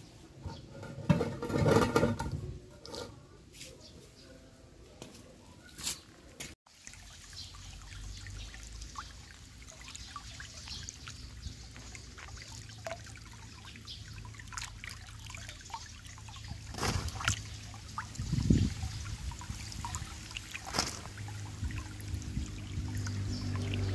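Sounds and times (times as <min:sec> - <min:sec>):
stream trickling over pebbles: 0:06.7 - 0:23.9
water splashing and dripping: 0:06.7 - 0:23.9.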